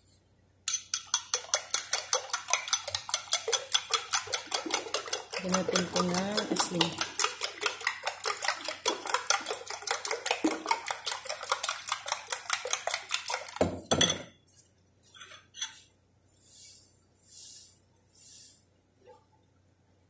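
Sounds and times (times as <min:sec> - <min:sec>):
utensil beating eggs in bowl: 0:00.7 - 0:13.8
soft hisses: 0:16.3 - 0:18.8.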